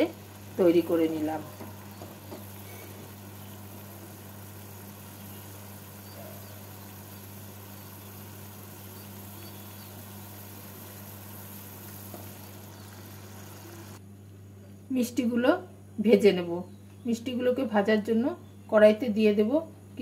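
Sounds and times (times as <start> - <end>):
syrup boiling bubbling hiss: 0.0 - 14.0
steady low hum: 0.0 - 20.0.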